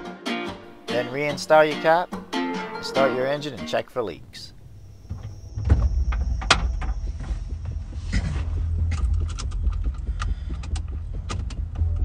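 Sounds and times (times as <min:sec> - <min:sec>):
steady low rumble: 0:04.0 - 0:12.0.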